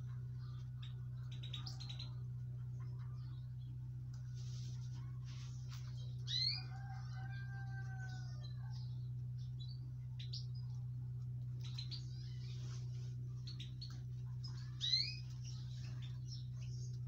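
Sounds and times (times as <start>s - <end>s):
goldfinches chirping: 0.0s - 2.2s, 11.5s - 17.0s
steady low hum: 0.0s - 17.0s.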